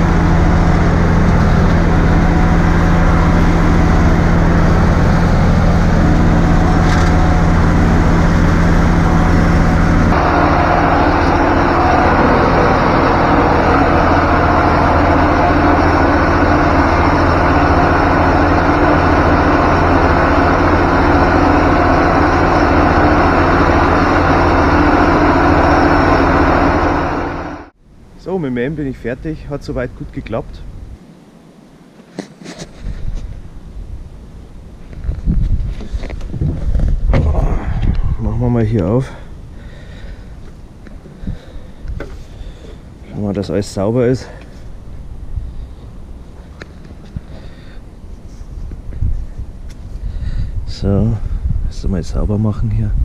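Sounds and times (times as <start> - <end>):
tractor engine running under load: 0.0 - 27.8.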